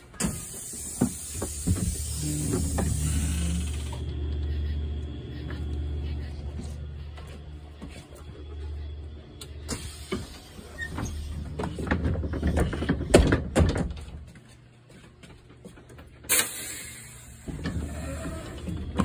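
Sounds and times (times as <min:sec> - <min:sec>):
bus engine idling hum: 0:00.0 - 0:12.8, 0:15.5 - 0:19.0
knocks and rattles: 0:11.0 - 0:14.4.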